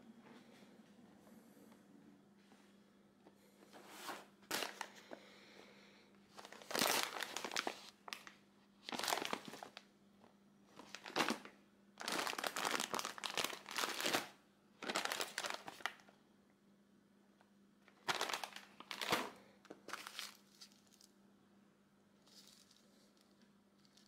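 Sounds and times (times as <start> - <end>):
plastic packets crinkling: 4.4 - 5.2, 6.3 - 9.9, 10.8 - 16.1, 17.8 - 21.2, 22.2 - 24.0.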